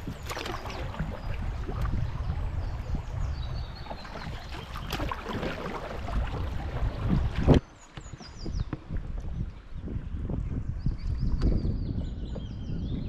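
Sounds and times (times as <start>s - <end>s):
water splashing against hull: 0.0s - 9.9s.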